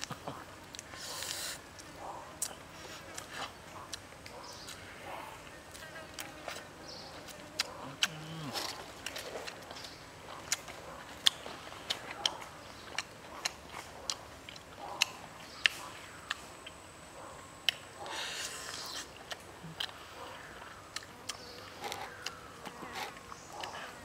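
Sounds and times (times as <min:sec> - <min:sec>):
person chewing with wet mouth smacks: 0:07.5 - 0:16.8, 0:18.6 - 0:20.0, 0:20.6 - 0:23.9.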